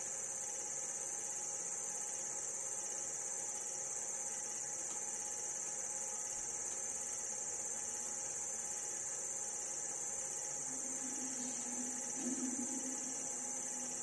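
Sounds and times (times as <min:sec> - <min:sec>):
tape hiss: 0:00.0 - 0:14.0
faint low steady tone: 0:10.6 - 0:14.0.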